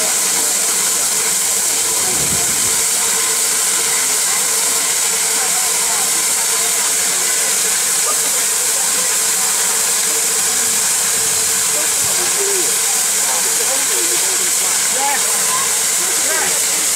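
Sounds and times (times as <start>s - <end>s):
steam hissing from safety valves: 0.0s - 16.9s.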